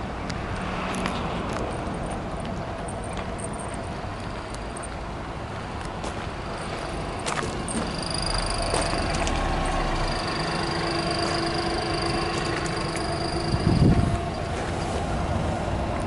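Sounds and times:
low vehicle rumble: 0:00.0 - 0:16.0
footsteps crunching on gravel: 0:05.6 - 0:15.2.

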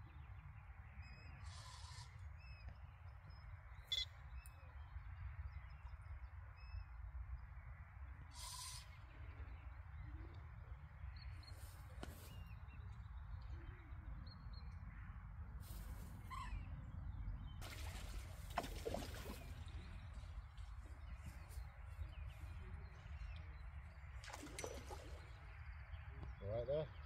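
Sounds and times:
faint bird chirps: 0:01.0 - 0:07.0.

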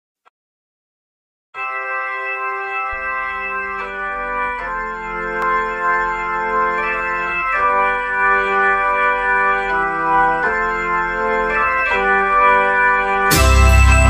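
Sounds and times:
organ-like chords: 0:01.6 - 0:14.0
bass line: 0:13.3 - 0:14.0.

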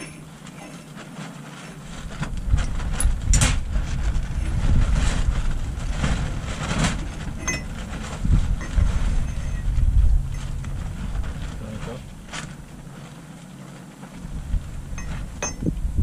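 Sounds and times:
loud low rumble: 0:02.3 - 0:13.0, 0:14.2 - 0:16.0.

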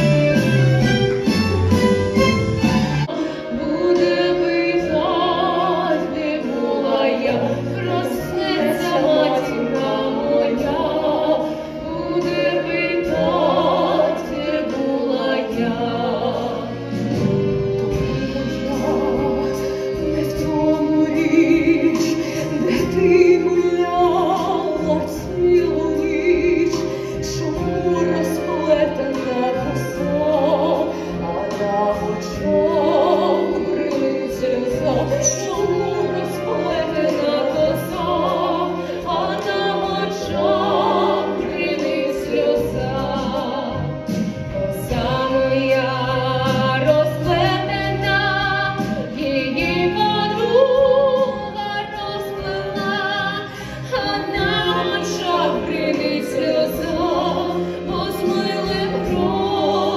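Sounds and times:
orchestral accompaniment: 0:00.0 - 0:59.9
women singing opera: 0:00.0 - 0:59.9.

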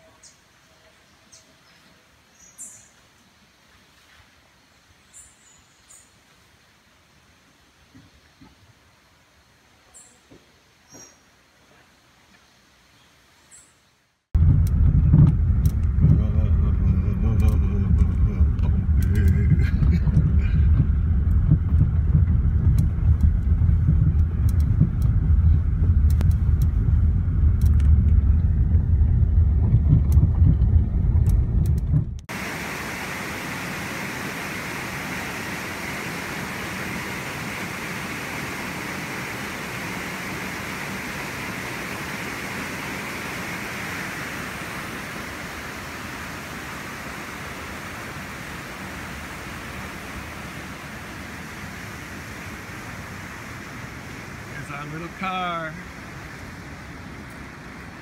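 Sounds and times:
car driving on gravel road: 0:14.4 - 0:33.0
river rushing over stones: 0:32.3 - 0:58.0.

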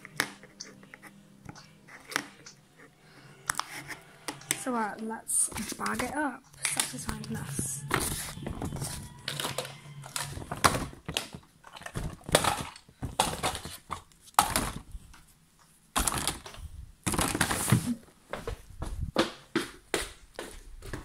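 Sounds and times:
plastic bag crinkling: 0:05.5 - 0:14.9.

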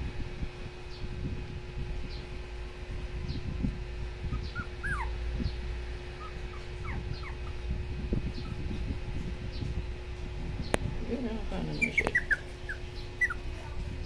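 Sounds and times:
puppy whimpering: 0:04.3 - 0:05.2, 0:06.2 - 0:08.8, 0:11.8 - 0:13.6.

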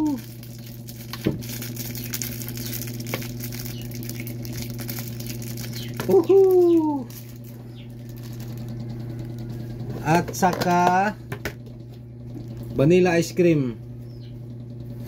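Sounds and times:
plastic wrapper crinkling: 0:00.0 - 0:09.5
low hum: 0:00.0 - 0:15.0.

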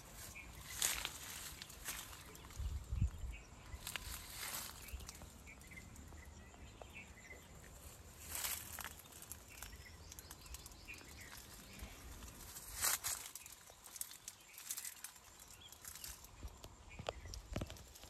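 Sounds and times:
low wind rumble: 0:00.0 - 0:08.2
faint bird chirps: 0:00.0 - 0:18.0
leaves rustling: 0:00.0 - 0:18.0.

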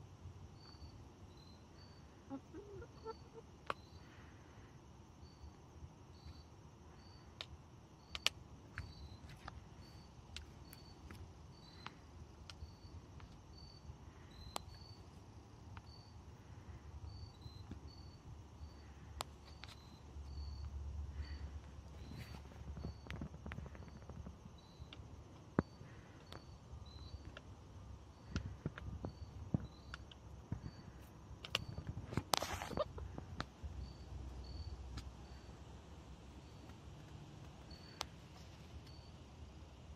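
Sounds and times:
faint low rumble: 0:00.0 - 0:39.9
insect chirping: 0:00.0 - 0:39.9
faint high peeps: 0:00.5 - 0:04.4, 0:31.6 - 0:33.2, 0:37.6 - 0:39.2
sharp clicks: 0:07.4 - 0:09.6, 0:31.4 - 0:33.5.

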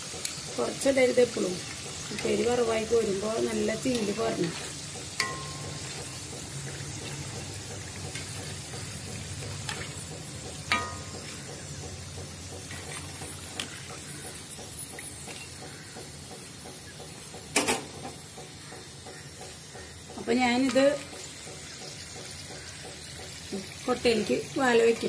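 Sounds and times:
oil sizzling in a wok: 0:00.0 - 0:25.0
spoon clinking on metal strainer: 0:05.2 - 0:06.0, 0:10.7 - 0:11.3.

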